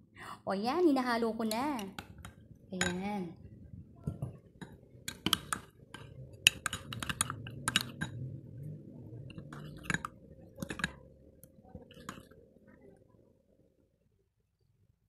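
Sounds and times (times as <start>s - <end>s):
spoon stirring in a glass: 4.6s - 8.4s, 9.1s - 12.4s.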